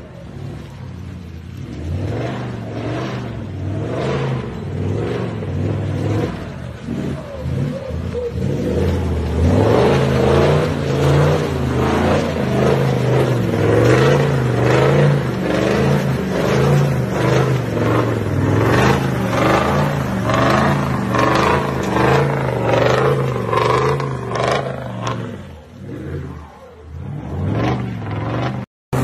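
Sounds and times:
truck engine revving: 0.0s - 29.0s.

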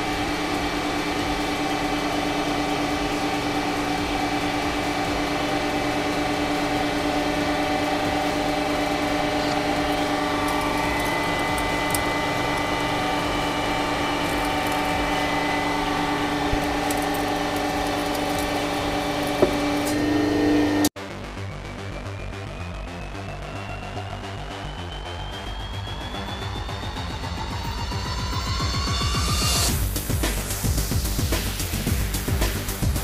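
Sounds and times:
hydraulic pump motor humming: 0.0s - 21.0s.

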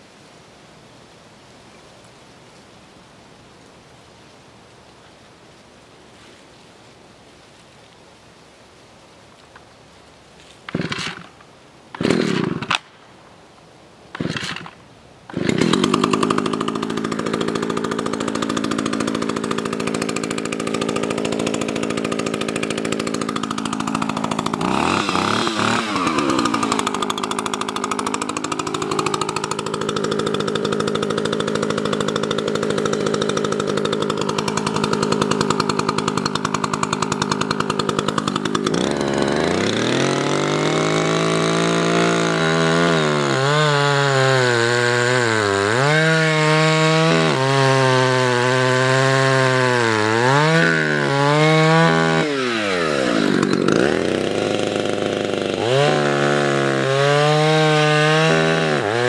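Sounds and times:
chainsaw cutting into wood: 10.7s - 11.4s, 12.0s - 12.9s, 14.2s - 59.0s
chainsaw idling and revving: 10.7s - 12.8s, 14.2s - 59.0s.

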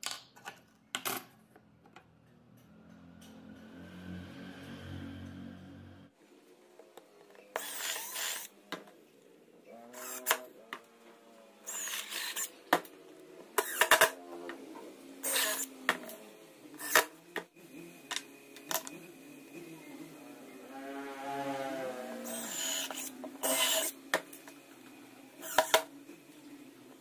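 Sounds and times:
cordless drill boring into wood: 7.6s - 8.5s, 10.0s - 10.4s, 11.7s - 12.5s, 22.2s - 23.9s.

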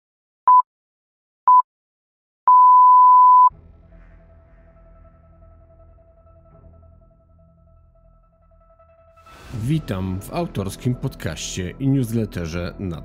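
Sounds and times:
faint low intro music: 3.5s - 13.0s.

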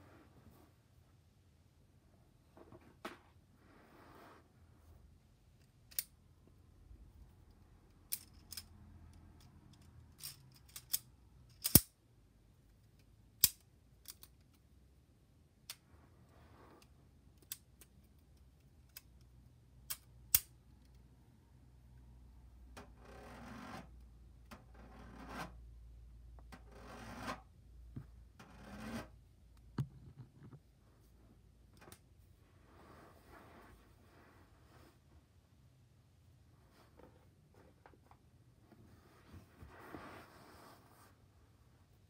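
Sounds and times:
rubbing and rustling: 36.6s - 41.6s.

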